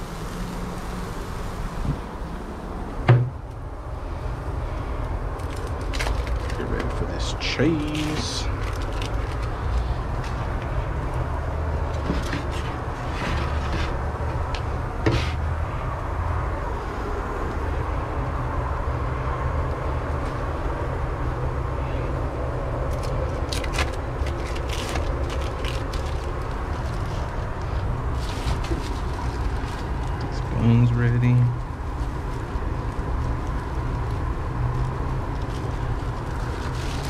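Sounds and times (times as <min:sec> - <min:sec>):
griddle hissing: 0:00.0 - 0:04.7.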